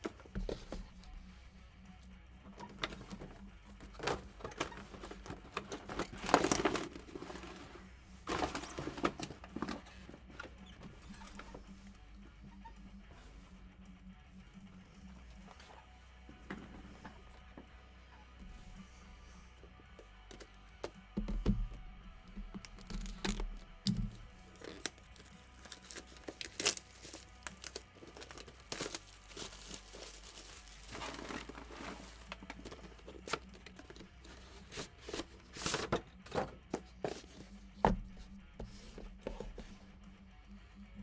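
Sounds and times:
plastic wrapping crinkling: 0:04.0 - 0:07.7, 0:22.6 - 0:35.9
tearing rustle: 0:24.5 - 0:33.8.

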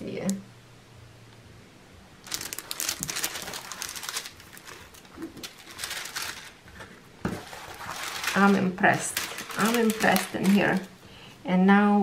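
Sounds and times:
plastic film crinkling: 0:02.2 - 0:11.0.

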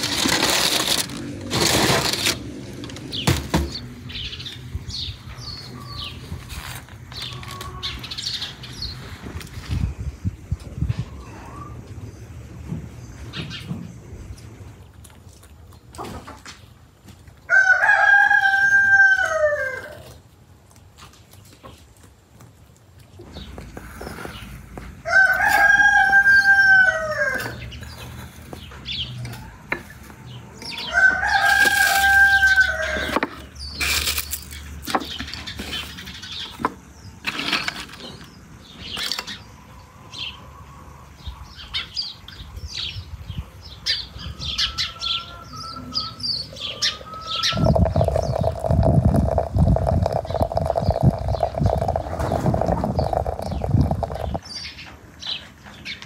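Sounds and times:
rooster crowing: 0:17.5 - 0:20.0, 0:25.0 - 0:27.6, 0:30.8 - 0:33.2, 0:44.4 - 0:48.4
hot water pouring into teapot: 0:47.4 - 0:54.4
bowls tapping and clinking: 0:47.6 - 0:54.4.

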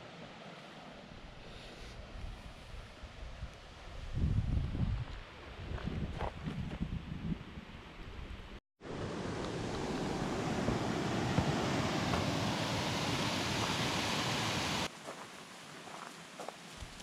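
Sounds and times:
white water rushing down a fall: 0:08.9 - 0:14.9.

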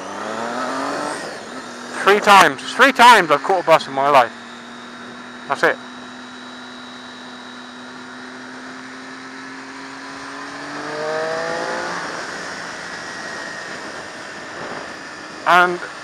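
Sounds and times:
motorcycle engine revving: 0:00.0 - 0:16.0.

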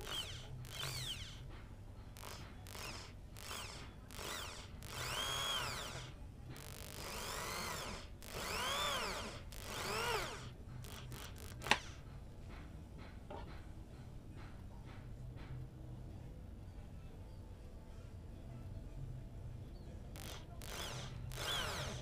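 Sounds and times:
electric drill boring through metal: 0:00.0 - 0:12.0, 0:20.2 - 0:22.0
sharp click: 0:09.6 - 0:12.0.

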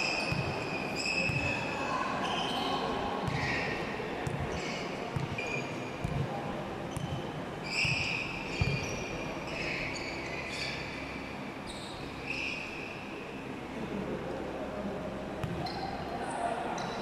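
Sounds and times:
sneakers squeaking on court: 0:00.0 - 0:12.8, 0:15.4 - 0:16.0
basketball bouncing: 0:00.3 - 0:00.6, 0:01.3 - 0:01.5, 0:03.2 - 0:03.6, 0:04.2 - 0:05.4, 0:06.0 - 0:06.3, 0:06.9 - 0:09.0, 0:15.4 - 0:15.7.

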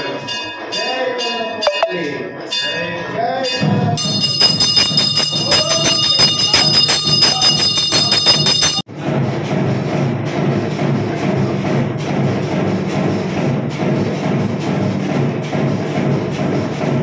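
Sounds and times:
voices: 0:00.0 - 0:08.8
bells ringing rapidly: 0:00.0 - 0:08.9.

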